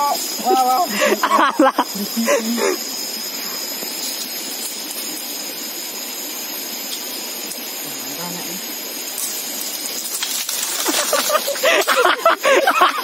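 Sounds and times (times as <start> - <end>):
rushing water: 4.6 - 13.0.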